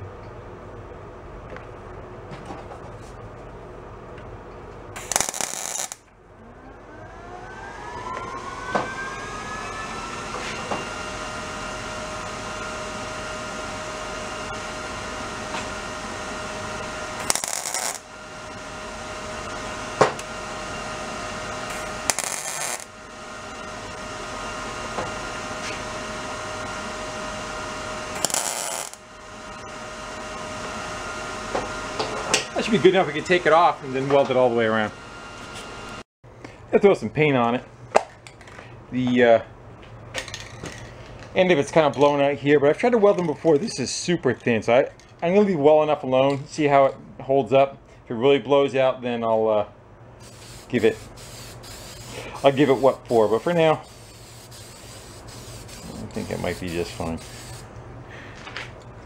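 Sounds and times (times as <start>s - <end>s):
welding arc crackle: 5.0s - 6.0s, 17.2s - 18.0s, 21.7s - 22.9s, 28.2s - 29.0s
welder hum: 5.0s - 36.1s, 50.2s - 58.4s.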